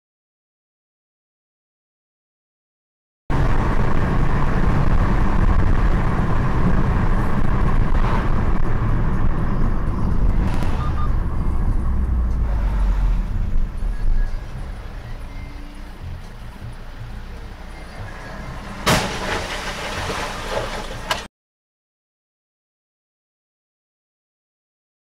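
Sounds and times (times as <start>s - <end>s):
car engine and road noise: 3.3s - 21.3s.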